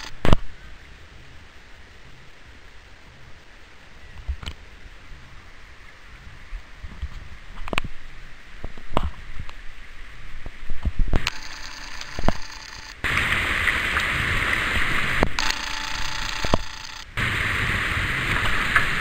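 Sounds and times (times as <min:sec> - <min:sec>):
sharp clicks and knocks: 0:11.2 - 0:13.0.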